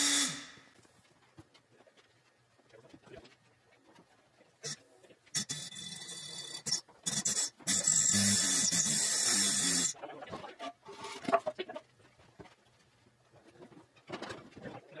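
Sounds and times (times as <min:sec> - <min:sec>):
knocks and clatter: 0:11.2 - 0:14.8.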